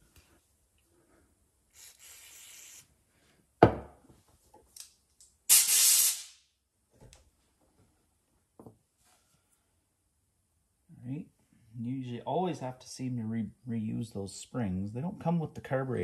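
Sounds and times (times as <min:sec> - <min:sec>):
aerosol spray hissing: 0:01.8 - 0:02.9
compressed air blast: 0:01.8 - 0:02.9, 0:05.5 - 0:06.4
can knocking on wooden bench: 0:03.6 - 0:03.9.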